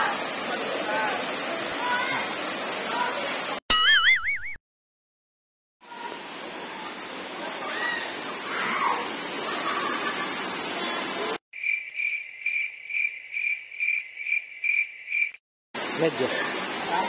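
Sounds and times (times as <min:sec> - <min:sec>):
waterfall rushing: 0:00.0 - 0:03.6, 0:05.9 - 0:11.4, 0:15.8 - 0:17.0
cricket chirping: 0:11.6 - 0:15.4.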